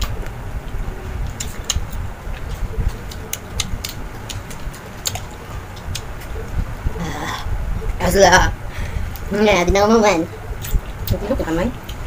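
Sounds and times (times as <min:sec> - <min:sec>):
crunchy chewing: 0:00.0 - 0:07.0
low steady rumble: 0:00.0 - 0:12.0.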